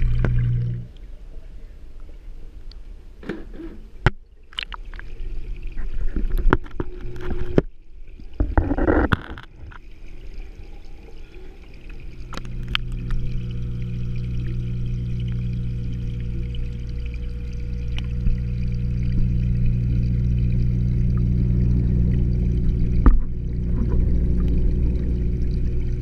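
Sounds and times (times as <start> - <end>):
water splash: 0.0 - 0.9, 12.0 - 26.0
underwater pump hum: 0.0 - 26.0.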